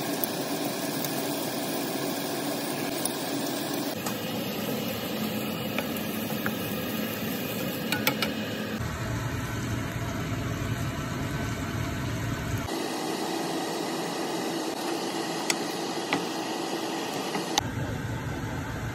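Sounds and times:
shrimp sizzling in a pan: 0.0 - 8.4.

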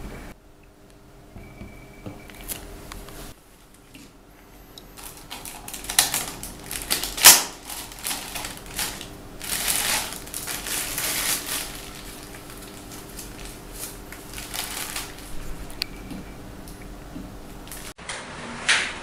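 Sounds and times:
plastic wrapping crinkling: 5.0 - 16.2, 17.6 - 18.0.

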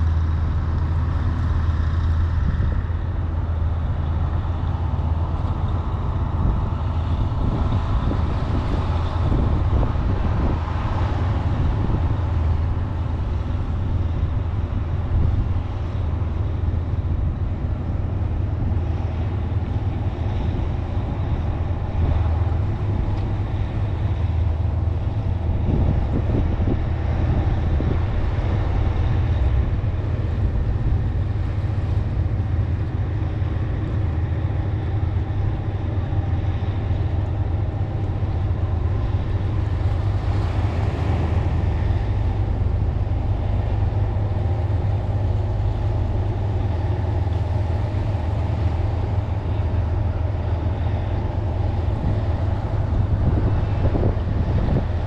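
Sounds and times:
low engine rumble: 0.0 - 55.0.

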